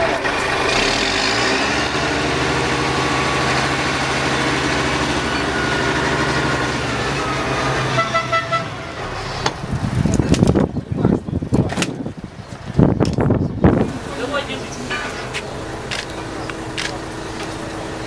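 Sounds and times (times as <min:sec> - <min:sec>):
heavy vehicle engine running: 0:00.0 - 0:18.0
high toot: 0:07.1 - 0:09.6.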